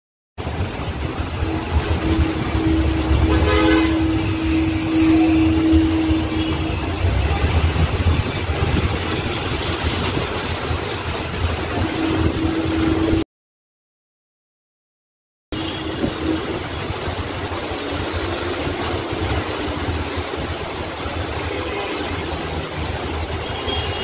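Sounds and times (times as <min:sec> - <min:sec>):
floodwater rushing: 0:00.4 - 0:13.2, 0:15.6 - 0:24.0
steady tone: 0:00.4 - 0:13.2.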